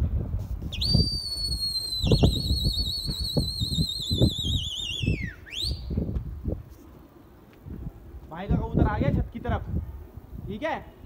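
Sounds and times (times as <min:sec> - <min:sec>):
loud high whistle: 0:00.7 - 0:06.1.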